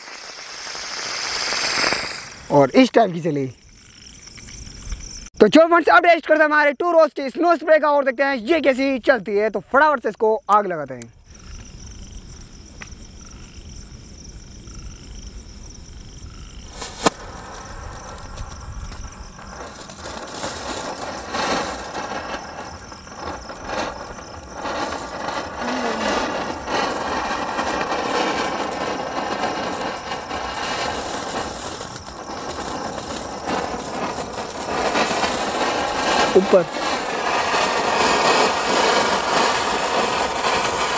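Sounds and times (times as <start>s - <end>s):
fuse fizzing: 0.0s - 2.5s, 16.8s - 40.9s
firework spraying sparks hiss: 0.0s - 2.9s, 16.6s - 40.9s
sharp pop: 16.8s - 17.4s.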